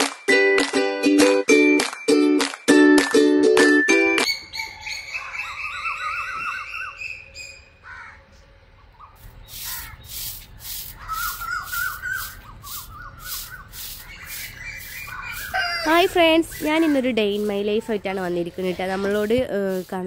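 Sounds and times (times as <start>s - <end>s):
birds chirping: 4.3s - 20.0s
broom sweeping earth: 9.2s - 20.0s.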